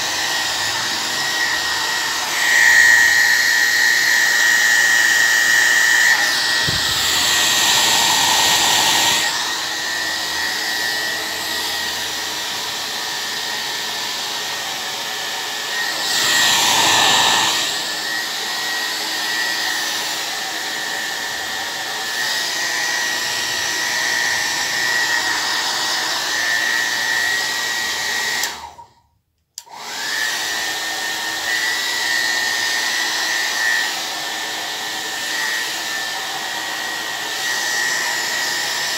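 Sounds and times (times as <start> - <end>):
hair dryer running: 0.0 - 38.9.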